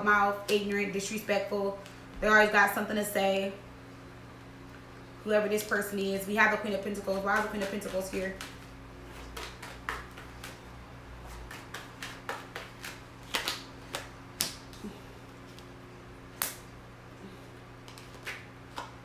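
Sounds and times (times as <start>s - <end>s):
cards being shuffled: 7.1s - 15.7s, 17.8s - 19.0s.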